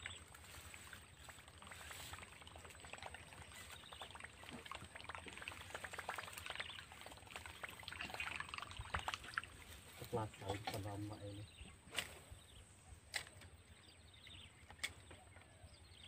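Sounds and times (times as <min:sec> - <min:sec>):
lure gurgling and splashing on water: 0:00.0 - 0:11.2.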